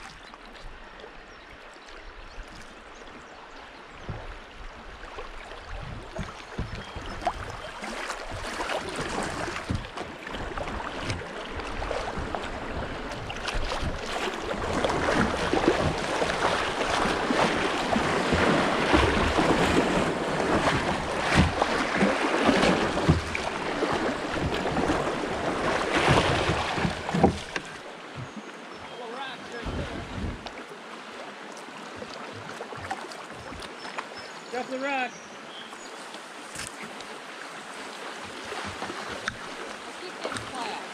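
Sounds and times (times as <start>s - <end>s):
small water splashes: 0.0s - 40.9s
river water rushing: 2.7s - 40.9s
wind buffeting microphone: 29.6s - 30.5s.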